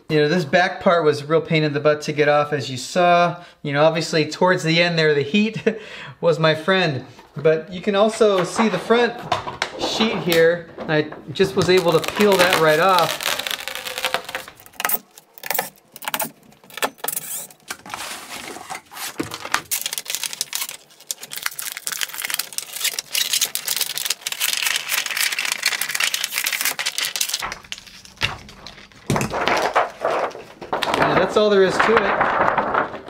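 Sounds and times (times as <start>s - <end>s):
plastic film peeling with crackles: 11.4s - 18.0s, 18.7s - 33.0s.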